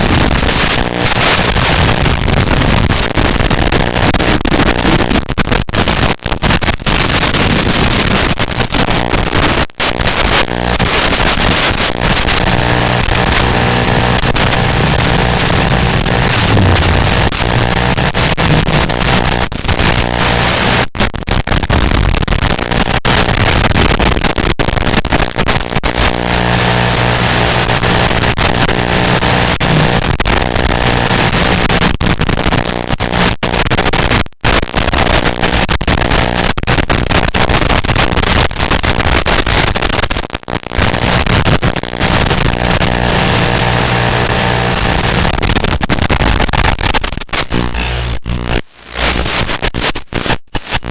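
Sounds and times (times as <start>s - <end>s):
static hiss: 0.0s - 25.2s, 40.8s - 50.9s
low buzz: 13.8s - 19.2s, 47.5s - 49.9s.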